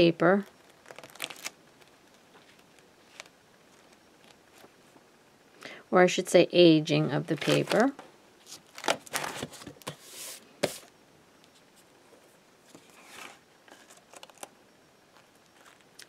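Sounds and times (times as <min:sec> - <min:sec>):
pages rustling: 0:00.6 - 0:04.8, 0:07.3 - 0:10.9, 0:12.7 - 0:14.5, 0:15.1 - 0:15.9.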